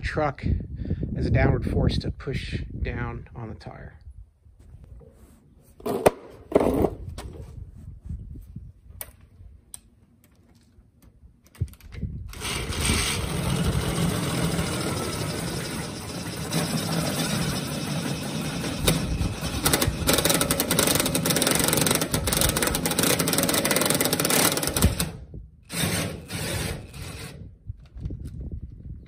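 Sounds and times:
click: 9.0 - 12.0
cordless drill spinning: 12.3 - 25.1.

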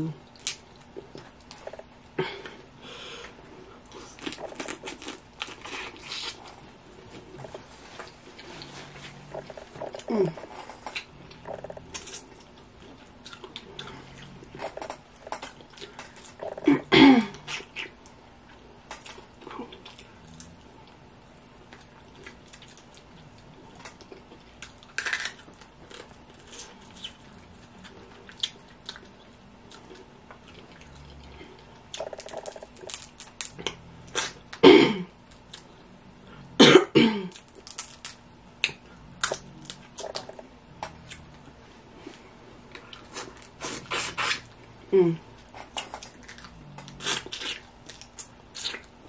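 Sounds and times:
smacking and chewing: 0.2 - 16.7, 17.3 - 34.6, 37.3 - 49.0.

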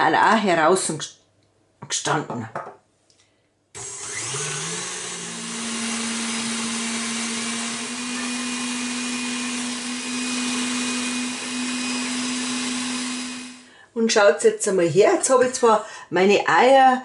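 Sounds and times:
stand mixer motor hum: 3.8 - 13.7.

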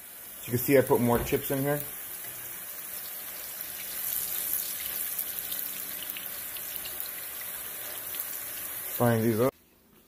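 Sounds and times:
chips sizzling in oil: 0.0 - 10.0.

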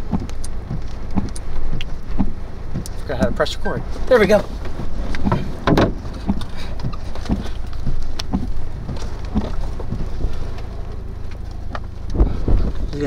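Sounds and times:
wind buffeting a vehicle: 0.0 - 13.0
knocks and taps on vehicle: 0.1 - 3.4, 4.6 - 10.3.

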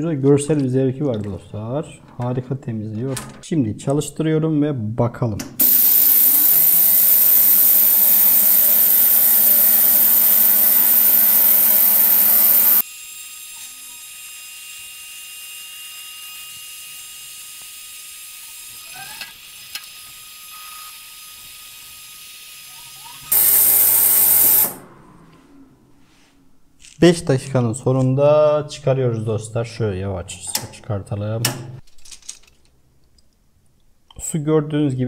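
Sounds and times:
ultrasonic cleaner buzzing hiss: 5.6 - 17.8, 23.2 - 24.8.

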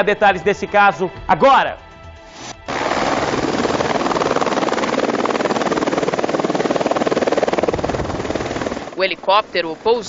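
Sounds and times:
helicopter rotor blades chopping: 2.6 - 10.0.

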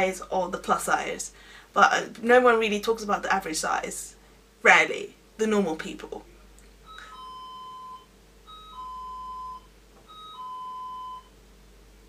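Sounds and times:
electronic doorbell chime: 6.9 - 11.4.

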